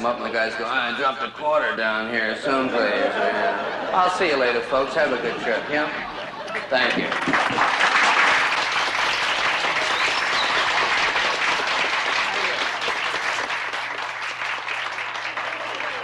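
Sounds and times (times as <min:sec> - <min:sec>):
audience applauding: 0:06.8 - 0:16.0.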